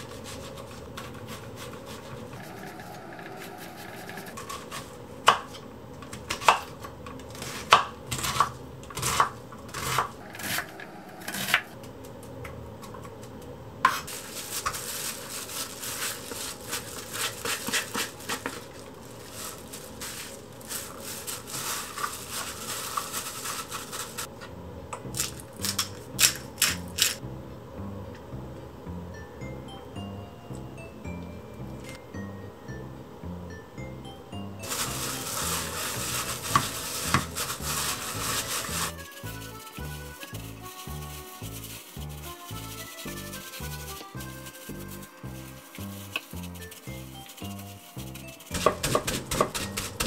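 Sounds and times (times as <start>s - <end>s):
rustling and scraping: 0.0s - 5.1s, 13.9s - 27.2s, 34.6s - 50.0s.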